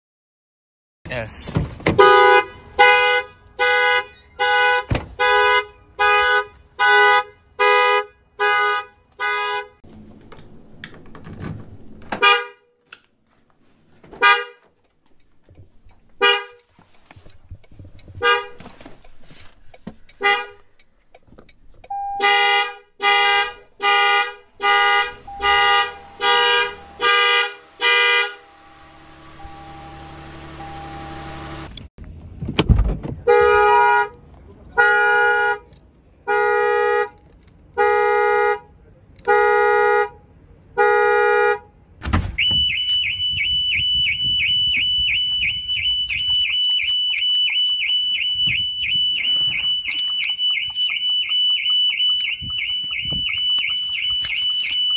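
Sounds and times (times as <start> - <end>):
car horn honking: 1.9 - 9.8, 12.2 - 12.8, 14.2 - 14.6, 16.2 - 16.7, 18.2 - 18.8, 20.2 - 20.7, 21.9 - 31.7, 33.2 - 34.2, 34.8 - 37.2, 37.8 - 40.2, 40.8 - 41.7.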